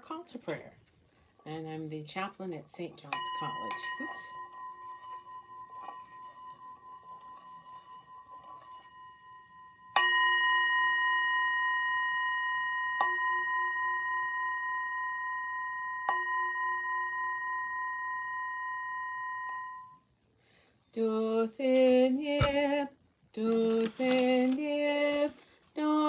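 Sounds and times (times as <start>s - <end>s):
singing bowl struck with mallet: 3.1s - 7.5s.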